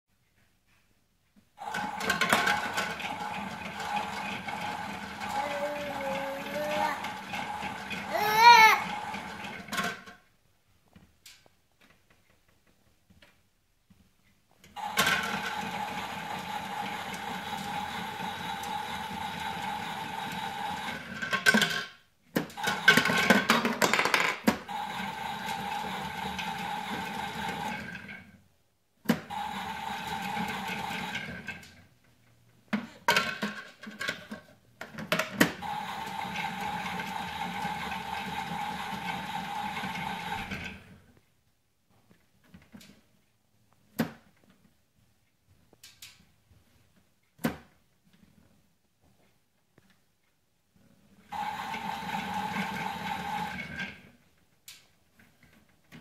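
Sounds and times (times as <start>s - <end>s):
toy washing machine whirring: 1.6s - 10.2s, 14.8s - 28.4s, 29.1s - 31.8s, 33.0s - 41.0s, 51.2s - 54.2s.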